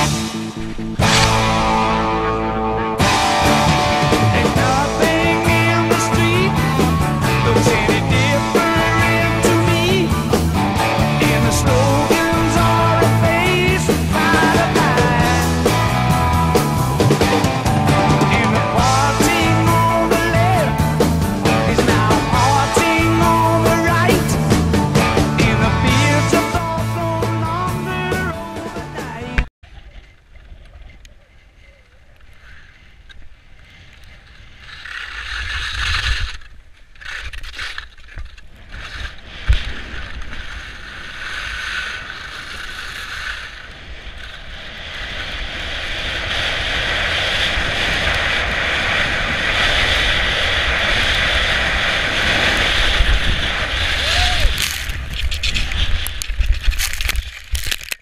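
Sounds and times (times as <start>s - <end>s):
skis running over snow: 29.8s - 58.0s
wind buffeting microphone: 43.5s - 57.7s
scraping and knocks in branches: 54.4s - 58.0s.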